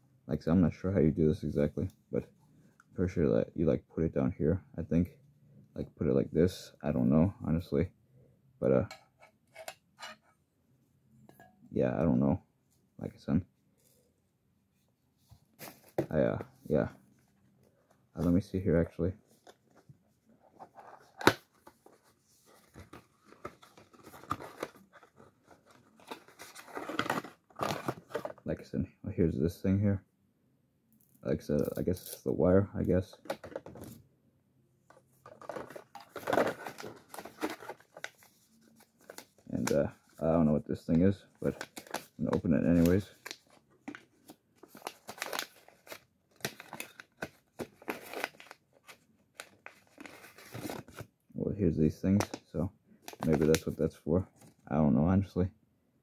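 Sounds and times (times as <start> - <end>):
packaging rustling and clicking: 20.5 - 28.4, 34.9 - 39.9, 41.4 - 51.1
paper packet crinkling: 41.4 - 51.0.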